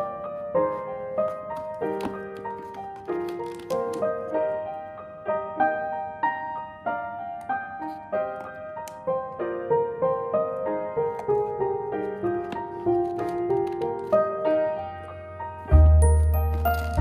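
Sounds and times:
light melody of ringing notes: 14.5 - 17.0.

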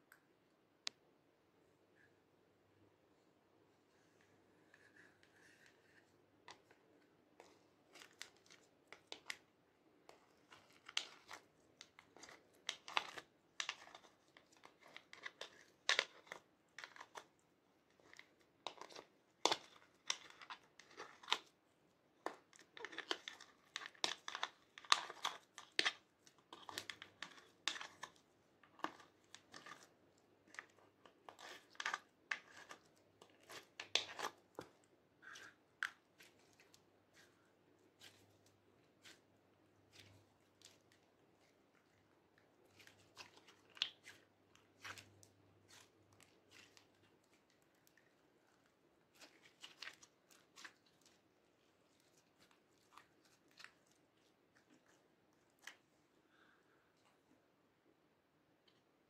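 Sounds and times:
sticky slime crackling: 10.1 - 21.6, 22.2 - 55.8.

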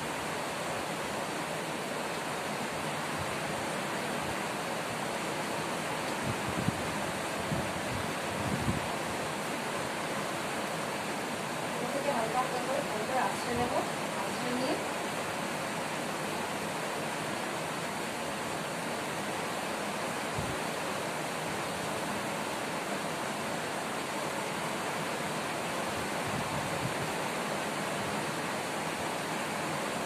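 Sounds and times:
background hiss: 0.0 - 30.0.

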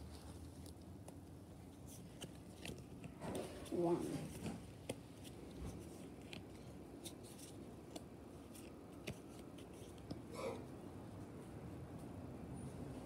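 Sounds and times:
cards being shuffled: 0.1 - 10.2.

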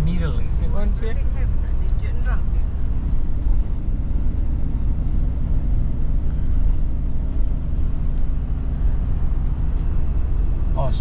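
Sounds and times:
vehicle engine and tyres rumbling: 0.0 - 11.0.

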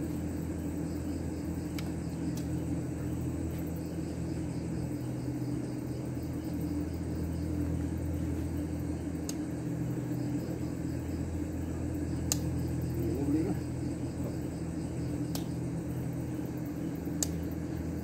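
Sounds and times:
crickets chirping: 0.0 - 18.0
low machine hum: 0.0 - 18.0.

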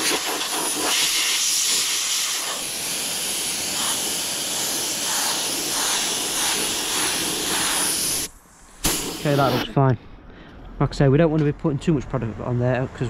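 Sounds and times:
compressed air hissing from spray gun: 0.0 - 9.7.

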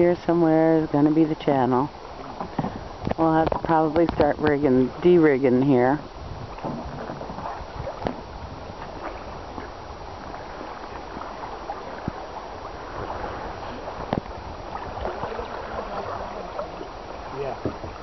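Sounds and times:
water lapping against hull: 0.0 - 18.0.

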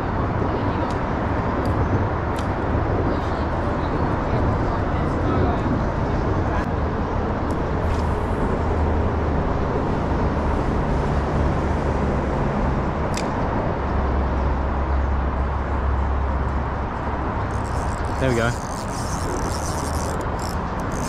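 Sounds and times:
traffic rumble on bridge: 0.0 - 21.0.

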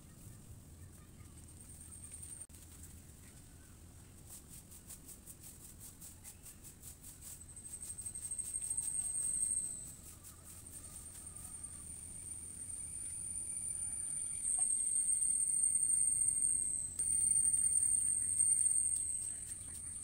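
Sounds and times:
insects buzzing: 7.2 - 20.0.

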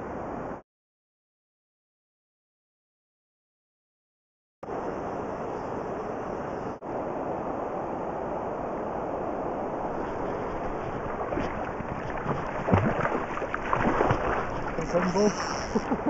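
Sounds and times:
river noise: 4.6 - 16.0
wind on microphone: 8.1 - 16.0
fish splashing in shallows: 9.8 - 16.0.

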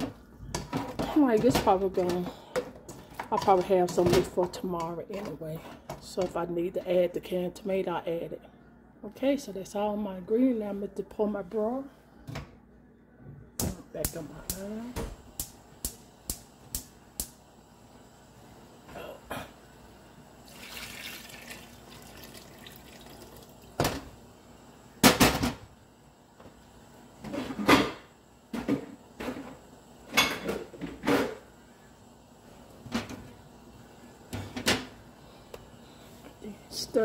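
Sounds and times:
broth pouring into a pot: 20.4 - 23.8.

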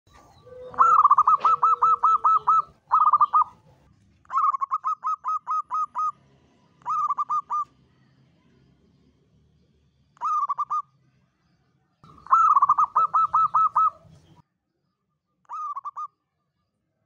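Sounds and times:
dove cooing: 0.1 - 3.6, 4.3 - 6.2, 6.8 - 7.7, 10.2 - 10.8, 12.0 - 14.4, 15.5 - 16.1.

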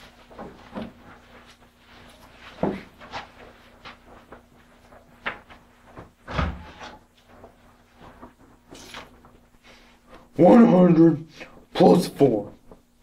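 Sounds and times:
papers rustling: 0.0 - 9.9
faint steady hum: 0.0 - 13.0.

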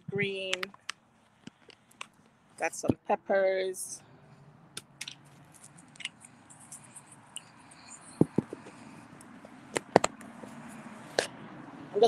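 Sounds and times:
phone handling clicks and knocks: 8.2 - 8.7.

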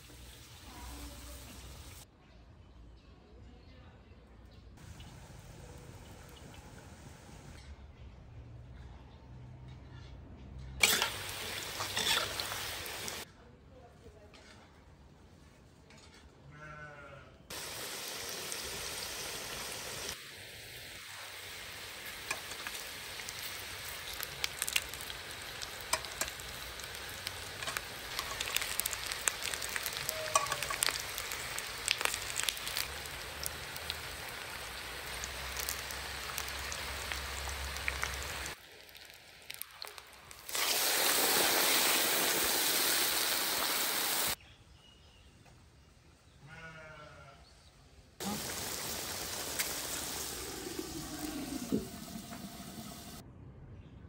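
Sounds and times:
oil sizzling and crackling: 0.0 - 2.1, 10.8 - 13.3, 17.5 - 44.4, 48.2 - 53.2
steam hissing from pot: 17.5 - 31.3, 40.4 - 44.4, 48.2 - 53.2.

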